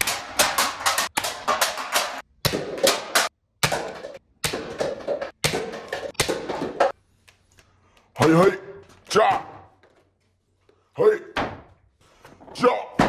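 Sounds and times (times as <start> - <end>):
darts knocking into cans and cups: 0.0 - 7.0.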